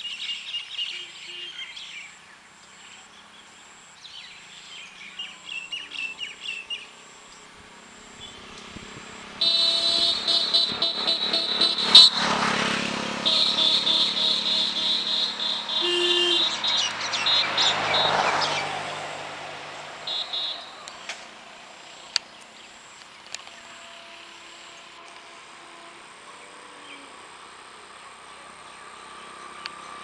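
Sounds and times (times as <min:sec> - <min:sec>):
passing vehicle: 0:01.1 - 0:30.0
birds chirping: 0:13.2 - 0:21.2.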